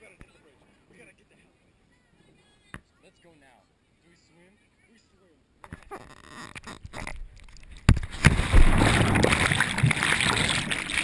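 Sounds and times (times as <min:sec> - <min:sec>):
muffled underwater rushing: 0:07.9 - 0:11.0
splash of water entry: 0:07.9 - 0:11.0.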